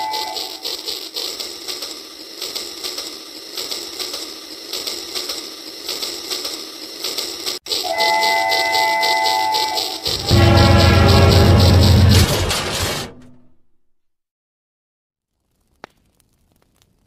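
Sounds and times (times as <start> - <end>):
toy train motor whirring: 0.0 - 12.1.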